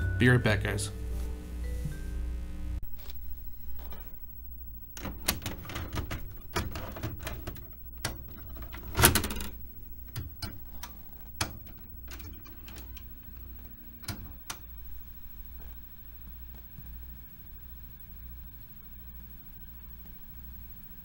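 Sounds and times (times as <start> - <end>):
vcr mechanism clicking and clunking: 4.9 - 14.9.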